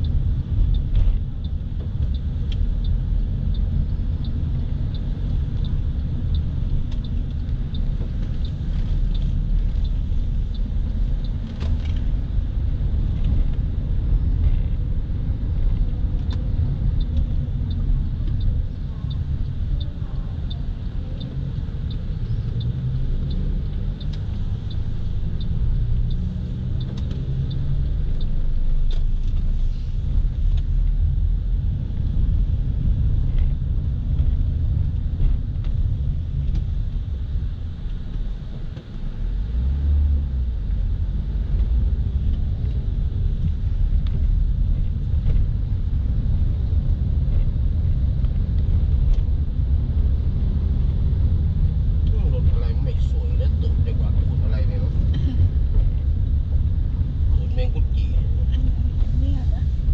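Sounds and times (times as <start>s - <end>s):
car engine and tyres rumbling: 0.0s - 59.9s
light regular ticking: 0.0s - 59.9s.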